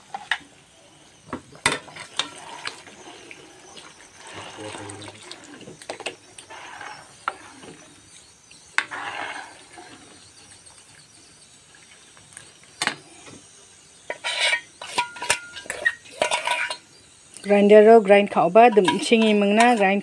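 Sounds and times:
broth scraping and sloshing: 1.6s - 8.0s, 8.8s - 10.3s.

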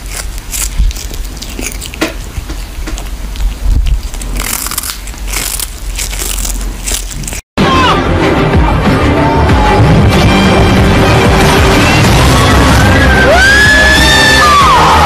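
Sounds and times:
kitten crunching on fish: 0.0s - 7.5s.

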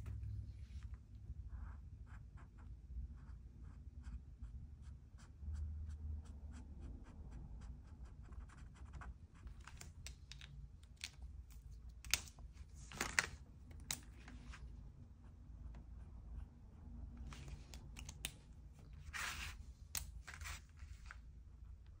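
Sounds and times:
marker scratching on canvas: 4.8s - 9.6s, 19.0s - 20.8s
marker cap clicks: 17.7s - 18.4s.

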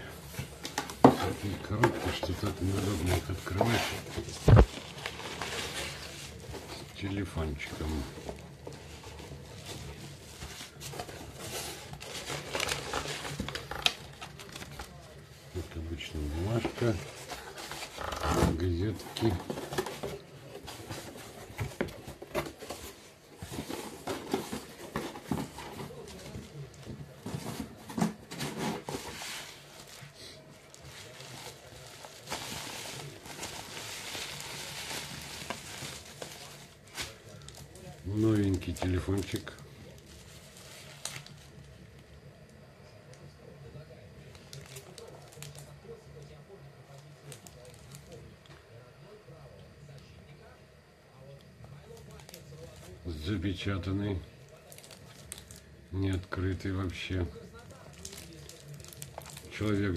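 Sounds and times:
paper and cardboard rustling: 0.0s - 41.7s.

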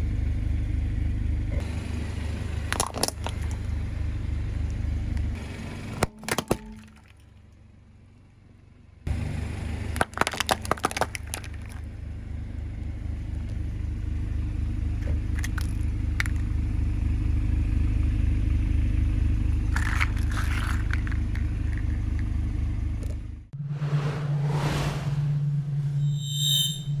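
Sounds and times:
car engine running: 0.0s - 26.1s
plastic capsules cracking: 10.0s - 11.8s, 19.7s - 22.3s.

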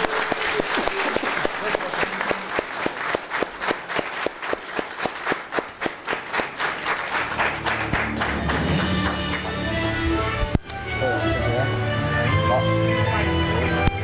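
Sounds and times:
audience applauding: 0.0s - 10.2s
music: 7.1s - 14.0s.

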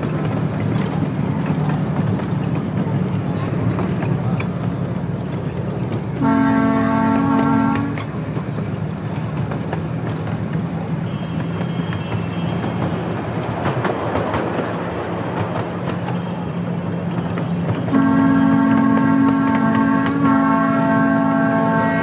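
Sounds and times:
miniature train rumble and clatter: 0.0s - 22.0s
train horn chord: 6.2s - 8.1s, 17.9s - 22.0s.

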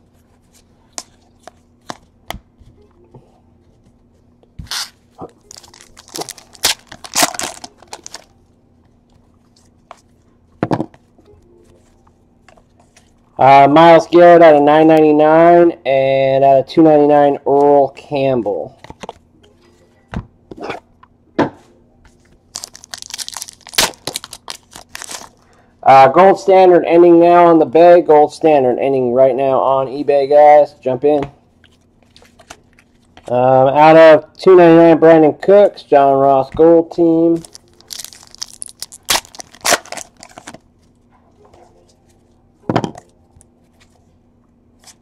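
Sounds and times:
cards shuffling: 4.6s - 8.3s, 22.1s - 25.4s, 37.4s - 40.6s
foil pack crinkling and tearing: 4.7s - 8.3s, 22.5s - 25.5s, 37.4s - 40.6s.

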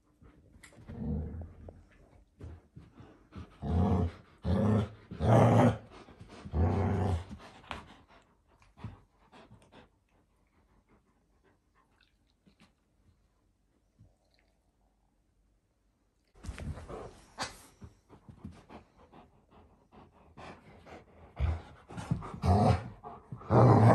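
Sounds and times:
puppies growling in play: 0.6s - 2.0s, 3.3s - 7.6s, 21.4s - 23.9s.

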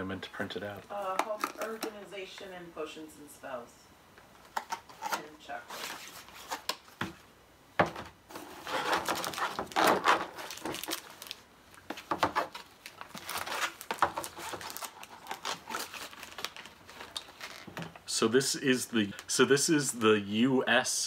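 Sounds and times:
plastic packs rustling and clacking: 7.9s - 18.1s.

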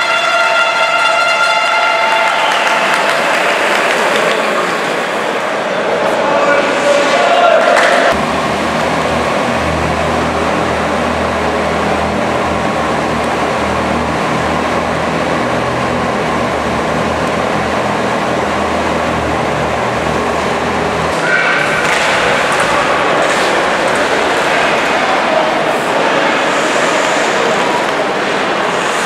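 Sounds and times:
arena noise: 0.0s - 29.0s
engine humming low: 8.0s - 29.0s.

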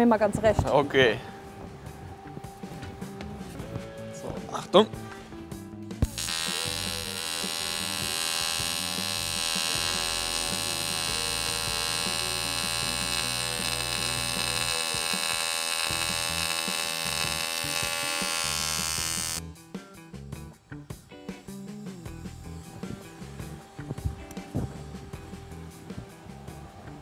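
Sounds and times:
welding arc buzzing: 6.0s - 19.4s, 21.4s - 24.6s.

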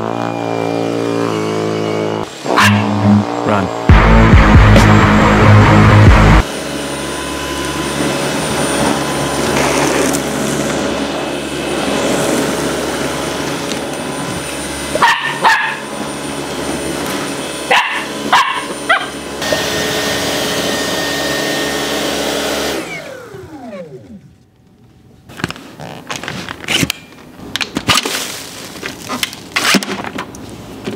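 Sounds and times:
vacuum cleaner running: 0.0s - 24.4s
vacuum motor winding down: 0.0s - 24.4s
puppy barking: 2.6s - 2.9s, 15.0s - 15.9s, 17.7s - 19.2s.

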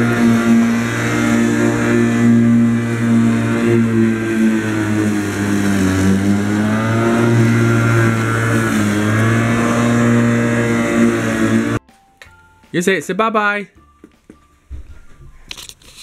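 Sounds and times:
electric lawnmower running: 0.0s - 11.8s.

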